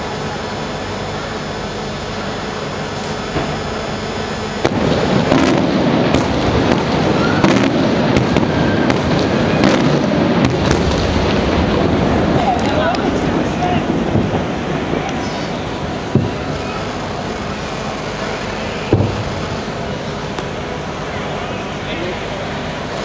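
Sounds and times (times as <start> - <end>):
steady background noise: 0.0 - 23.0
firework bangs and cracks: 3.0 - 21.0.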